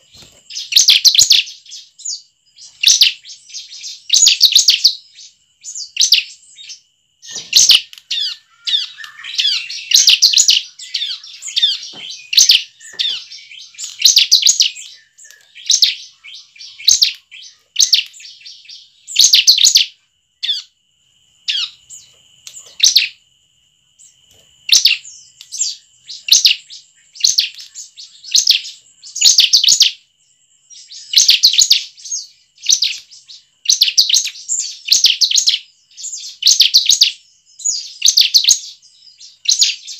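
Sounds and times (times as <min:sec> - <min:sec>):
bird chirping: 0:00.0 - 0:39.9.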